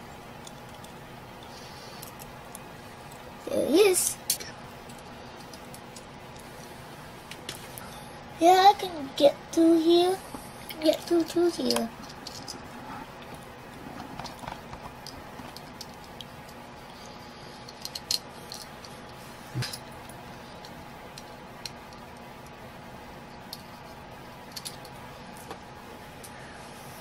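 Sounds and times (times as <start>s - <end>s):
faint hum: 0.0s - 27.0s.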